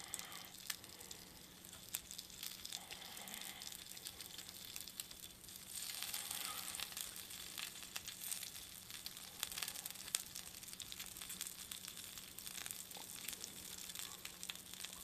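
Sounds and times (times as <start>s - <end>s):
crackles and pops of frying: 0.0s - 15.0s
dumplings sizzling on hot plate: 0.0s - 15.0s.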